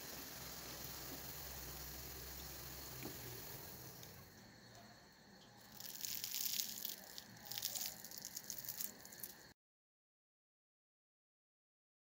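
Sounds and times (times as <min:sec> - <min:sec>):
food sizzling in hot oil: 0:00.0 - 0:04.6, 0:05.6 - 0:09.5
fried crust crackling and crunching: 0:05.6 - 0:09.5.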